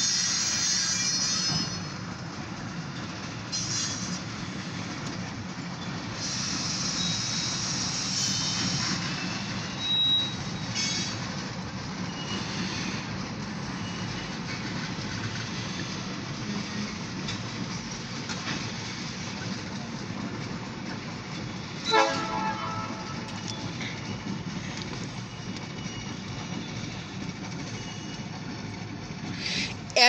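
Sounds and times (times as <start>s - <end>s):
train wheels clattering on rail: 0.0s - 30.0s
loud pitched horn blast: 21.9s - 23.3s.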